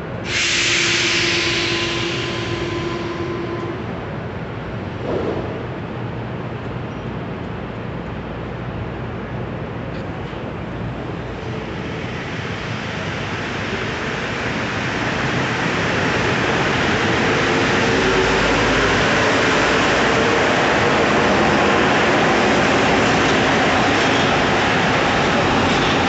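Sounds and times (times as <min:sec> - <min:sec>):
metro train running: 0:00.0 - 0:26.0.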